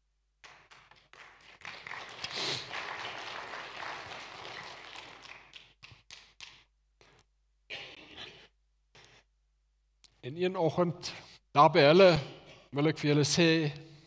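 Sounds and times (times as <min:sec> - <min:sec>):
congregation applauding: 0:00.4 - 0:06.5.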